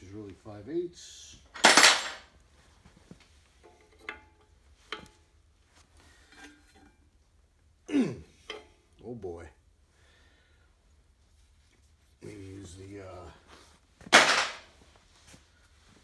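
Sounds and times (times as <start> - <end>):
steel wrenches clattering: 1.5 - 2.3, 3.6 - 5.4, 6.2 - 7.1, 8.4 - 9.0, 14.1 - 14.7.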